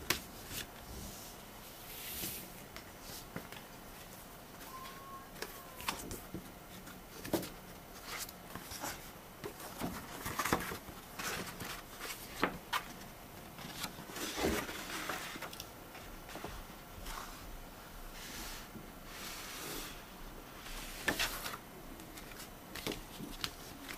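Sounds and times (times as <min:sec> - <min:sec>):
paper rustling and crinkling: 0:06.8 - 0:17.1.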